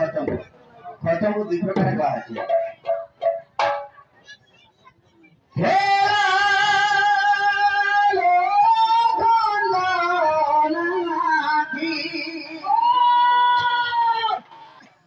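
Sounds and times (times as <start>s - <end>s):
drum knock: 1.8s - 4.0s
person singing through loudspeaker: 5.5s - 14.8s.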